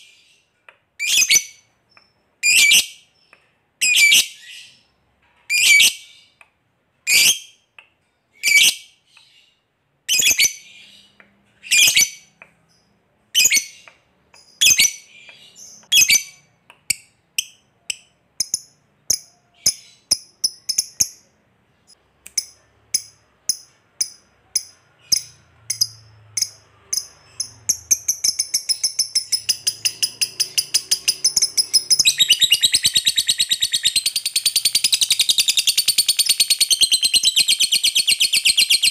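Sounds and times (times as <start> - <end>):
lovebird chattering calls: 22.4 - 38.9.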